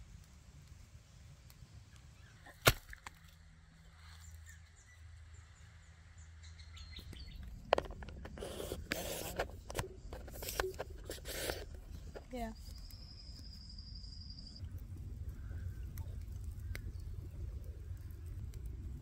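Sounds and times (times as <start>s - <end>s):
faint bird chirps: 3.9s - 7.5s, 11.8s - 17.4s
crunching and scraping with clicks: 7.0s - 13.4s.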